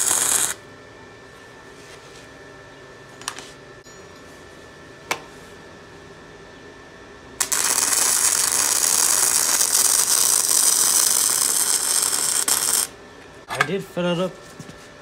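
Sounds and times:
welding arc crackling: 0:00.0 - 0:00.6, 0:07.4 - 0:12.9.

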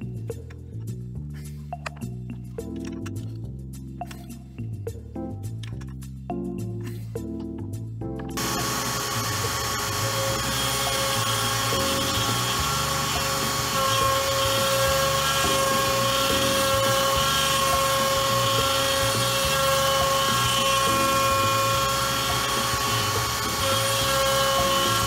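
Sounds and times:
router high-pitched whine: 0:08.4 - 0:25.0
stepper motors humming: 0:08.4 - 0:25.0.

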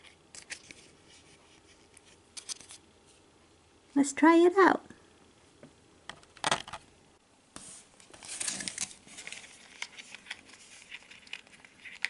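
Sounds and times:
crinkly rustling: 0:07.9 - 0:12.0.

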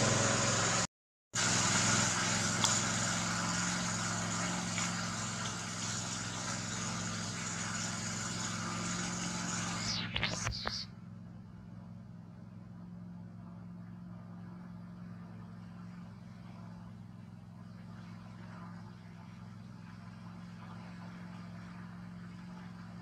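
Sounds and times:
engine-like drone with hiss: 0:00.0 - 0:23.0.

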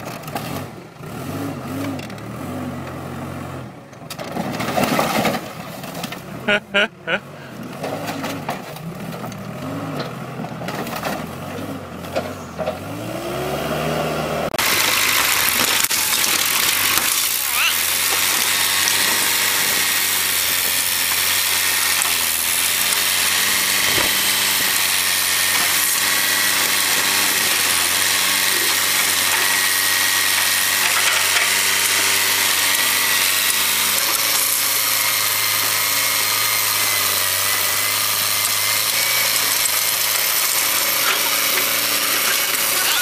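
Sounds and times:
diesel engine running: 0:00.0 - 0:43.0
bucket crushing car body: 0:04.1 - 0:06.3.

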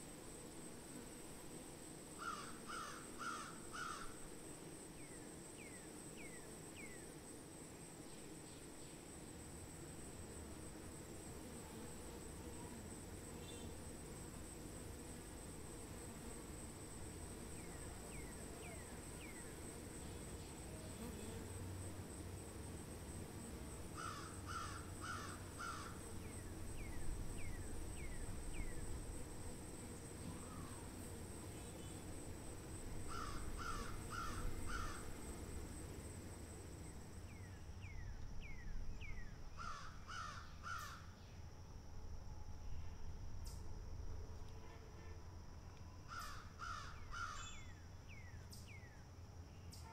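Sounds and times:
crow cawing: 0:02.2 - 0:04.2, 0:24.0 - 0:26.0, 0:33.1 - 0:35.0, 0:39.6 - 0:41.0, 0:46.1 - 0:47.5.

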